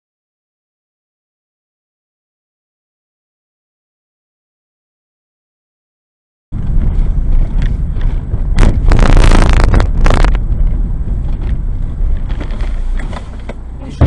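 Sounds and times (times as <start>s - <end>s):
road and engine rumble: 6.5s - 14.0s
wind noise on microphone: 6.5s - 14.0s.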